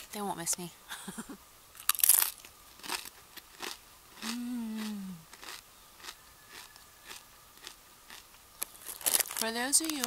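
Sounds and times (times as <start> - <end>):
tortilla chip crunching: 1.8 - 10.0
closed-mouth hum: 4.2 - 9.0.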